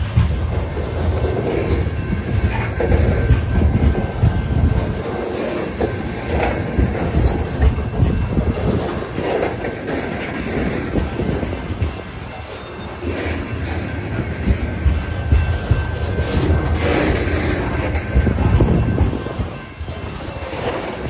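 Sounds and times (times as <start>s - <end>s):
freight train rumbling past: 0.0s - 21.0s
wheels clicking over rail joints: 0.0s - 21.0s.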